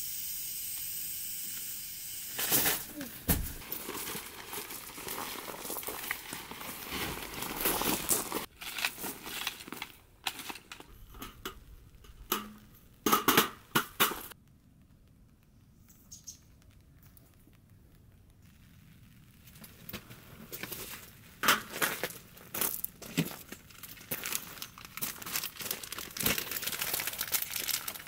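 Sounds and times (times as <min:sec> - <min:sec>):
camping gear rustling: 0:02.3 - 0:13.0, 0:19.5 - 0:28.0
footsteps crunching on gravel: 0:03.2 - 0:10.8, 0:19.5 - 0:27.7.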